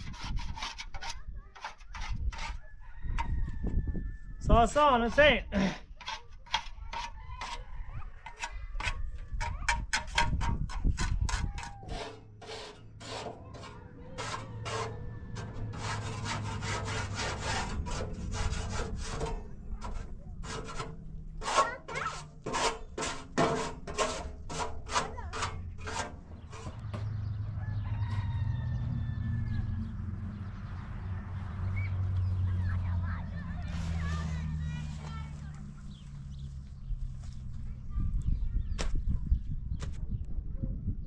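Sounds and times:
trowel scraping cement block: 0.0 - 2.6, 5.0 - 27.1.

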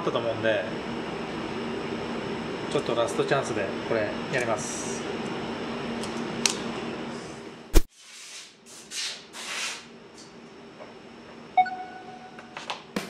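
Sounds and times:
workshop hum: 0.0 - 13.0
smartphone timer beep: 11.6 - 12.4.

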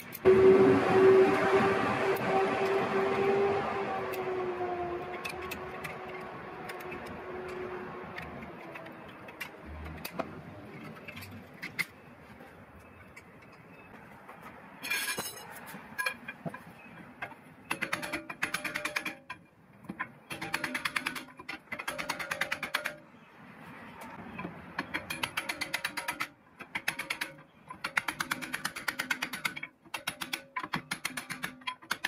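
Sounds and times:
screwdriver clicking and tapping metal: 24.4 - 32.0.

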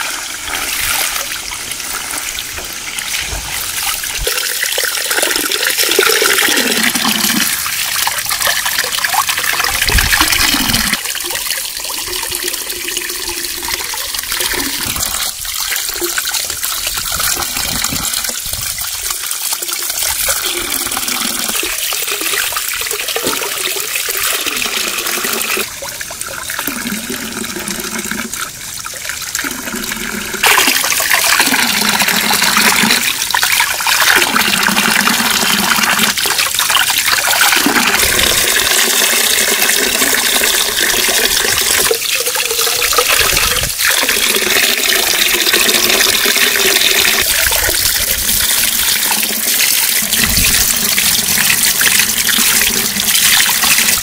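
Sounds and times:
running water splashing: 0.0 - 54.0.

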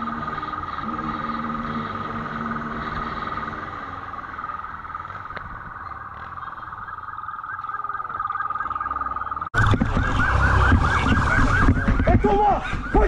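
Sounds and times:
motorcycle engine running: 0.0 - 7.0
high rapidly pulsing siren tone: 0.0 - 13.0.

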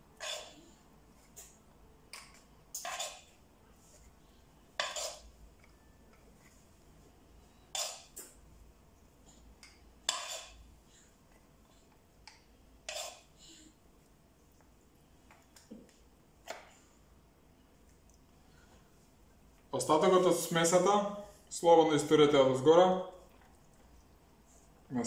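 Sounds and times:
metal spoon scraping frying pan: 0.2 - 0.6, 2.8 - 3.3, 4.8 - 5.3, 10.1 - 10.6.

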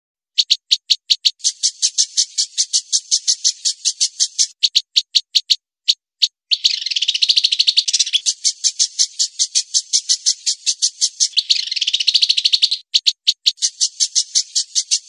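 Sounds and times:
sharp high chirps: 0.3 - 15.0.

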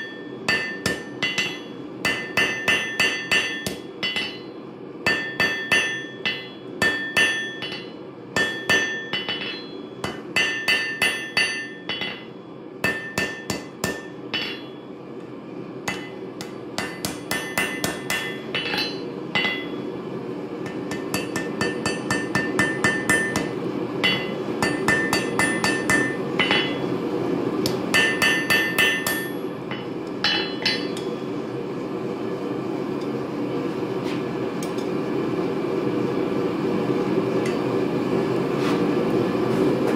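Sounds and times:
hammer striking anvil: 0.0 - 4.5, 5.1 - 14.8, 15.9 - 19.9, 20.6 - 26.9, 27.7 - 31.2.

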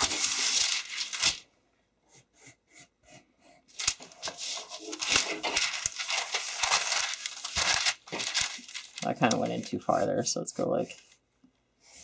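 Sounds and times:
paper rustling against a table: 0.0 - 1.4, 3.7 - 10.1.

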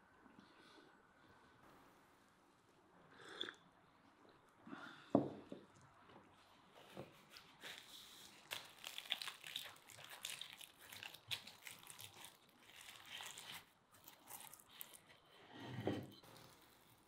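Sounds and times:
crisp pastry crackling as torn: 7.7 - 15.1.

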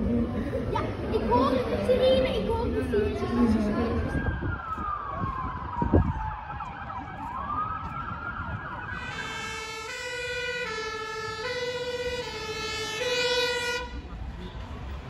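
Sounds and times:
wailing siren: 3.5 - 14.2
two-tone siren: 3.9 - 14.1.

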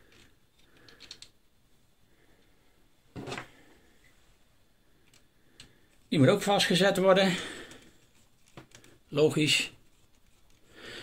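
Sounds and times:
small plastic clicks: 0.1 - 1.4, 5.0 - 5.8, 8.4 - 9.0.

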